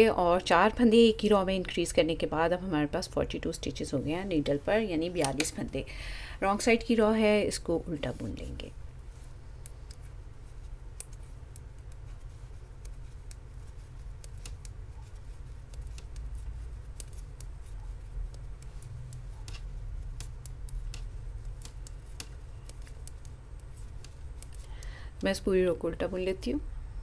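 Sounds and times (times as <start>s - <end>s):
low steady hum: 0.0s - 27.0s
metal knitting needles clicking: 10.9s - 12.2s, 12.8s - 25.4s.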